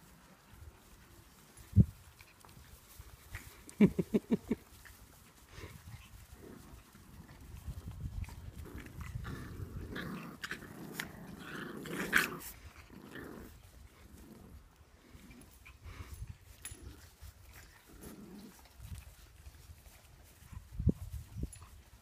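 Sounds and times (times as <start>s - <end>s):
puppies scuffling: 0.0s - 22.0s
puppy growls: 8.4s - 16.0s, 16.6s - 18.8s.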